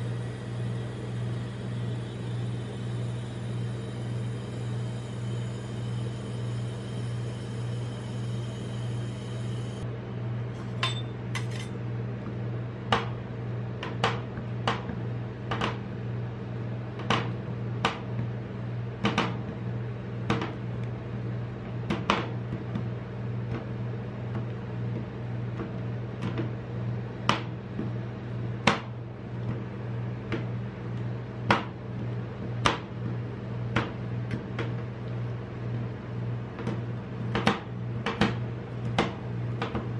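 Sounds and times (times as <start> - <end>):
refrigeration unit humming: 0.0 - 39.9.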